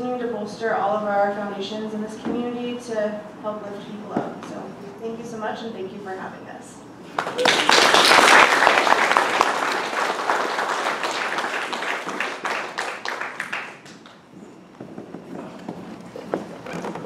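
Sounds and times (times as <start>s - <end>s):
audience applauding: 7.1s - 14.2s.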